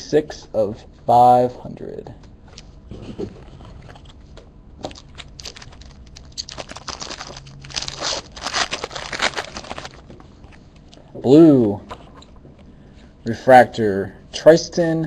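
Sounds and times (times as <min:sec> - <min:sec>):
foil wrapper tearing and crinkling: 0:04.9 - 0:10.1.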